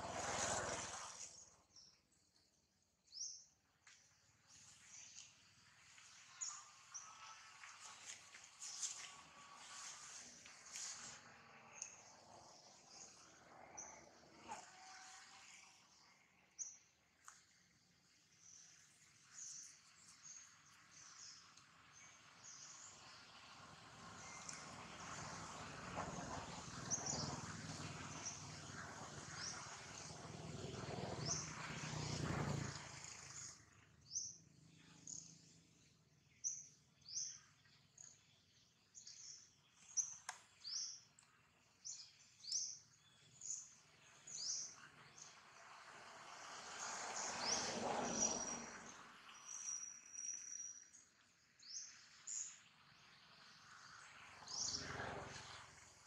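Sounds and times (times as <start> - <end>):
small birds chirping: 0.5 - 45.8, 47.1 - 56.0.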